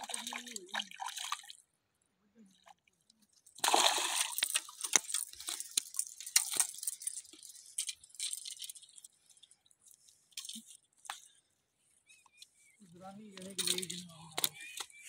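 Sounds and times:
rattling clicks of fishing tackle: 4.3s - 11.3s, 13.4s - 14.9s.

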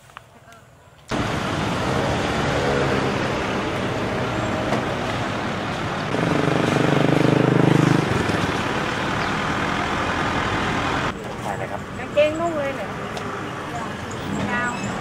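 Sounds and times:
street traffic noise: 0.0s - 15.0s
vehicle engine passing close: 1.1s - 11.2s.

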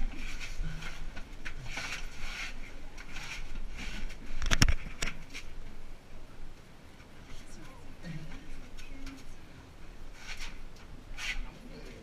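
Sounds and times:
person crawling shuffling and scraping: 0.0s - 5.6s.

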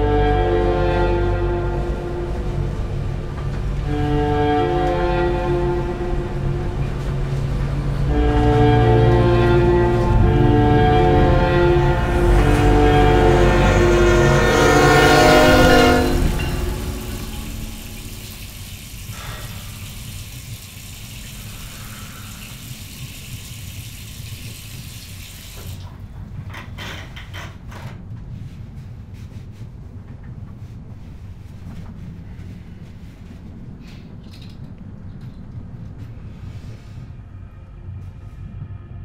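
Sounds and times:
train horn: 0.0s - 20.0s, 21.4s - 22.8s, 32.4s - 34.0s
low rumble and hiss: 0.0s - 39.0s.

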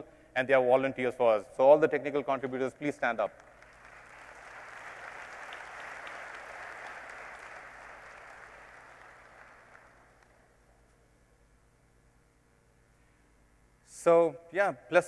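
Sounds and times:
large audience applauding: 3.4s - 10.5s.

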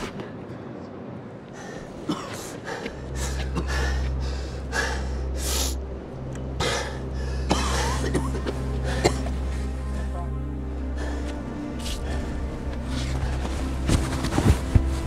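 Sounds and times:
man panting heavily: 1.6s - 5.8s.

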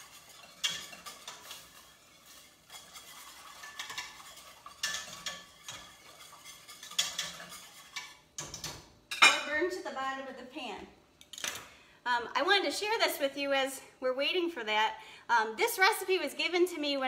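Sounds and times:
whisk scraping a metal pot: 0.0s - 8.8s.

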